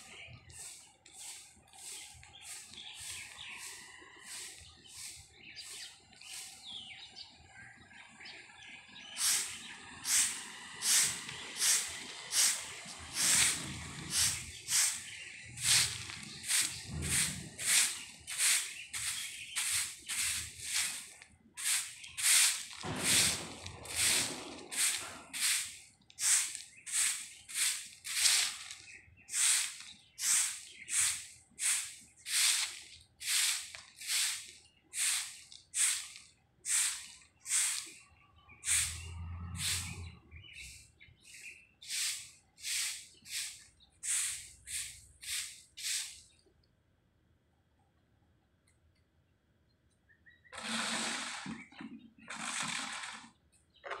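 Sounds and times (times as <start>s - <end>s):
broom sweeping pavement: 0.0s - 6.9s, 9.0s - 46.3s, 50.6s - 51.7s.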